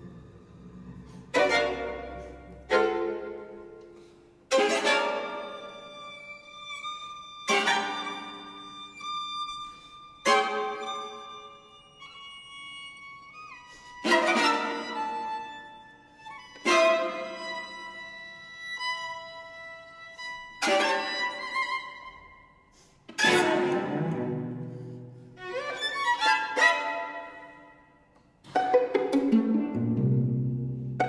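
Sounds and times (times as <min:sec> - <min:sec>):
low cello notes: 0:00.0 - 0:09.4
string quartet playing: 0:00.0 - 0:31.0.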